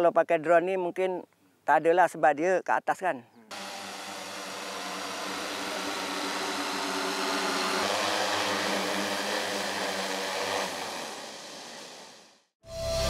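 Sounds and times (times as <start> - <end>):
drone rotors humming: 3.5 - 12.4.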